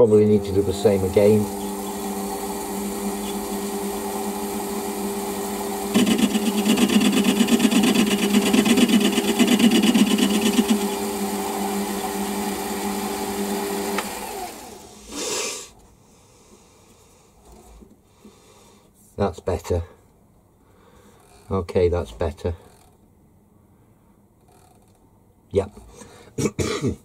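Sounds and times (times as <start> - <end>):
lathe motor hum: 0.0 - 15.1
spindle winding down: 0.0 - 15.2
cutting tool cutting metal: 5.9 - 11.2.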